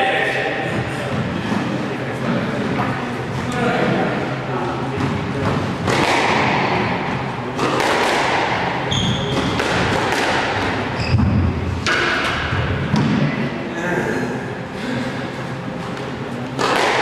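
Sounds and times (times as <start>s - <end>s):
squash ball knocks: 5.0s - 7.0s, 7.6s - 13.3s
shoes squeaking on court floor: 8.8s - 9.6s, 10.9s - 11.4s.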